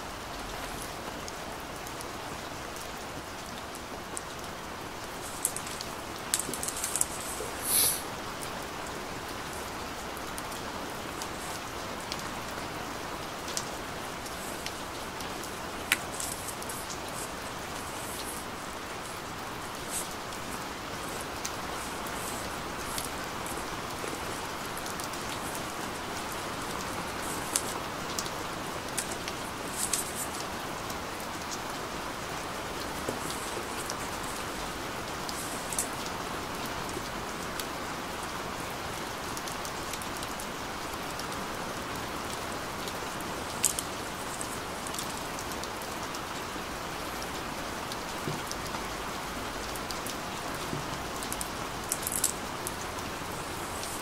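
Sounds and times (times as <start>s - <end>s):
steady hiss: 0.0s - 54.0s
cardboard packaging crinkling: 5.2s - 8.0s.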